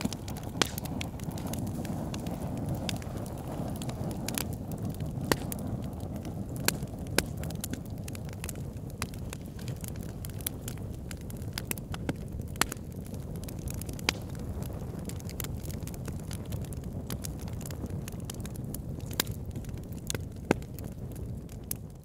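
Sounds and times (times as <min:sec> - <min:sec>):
sharp pops and snaps: 0:00.0 - 0:03.0, 0:03.8 - 0:10.7, 0:11.6 - 0:12.9, 0:13.6 - 0:14.6
fire crackling: 0:00.0 - 0:22.0.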